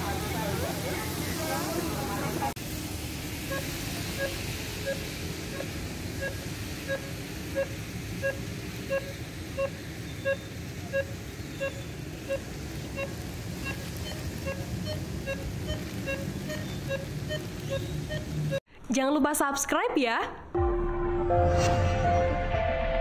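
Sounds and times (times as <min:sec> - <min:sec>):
rain: 0:00.0 - 0:18.6
road traffic: 0:00.0 - 0:18.6
pedestrian crossing signal beeping: 0:03.4 - 0:18.6.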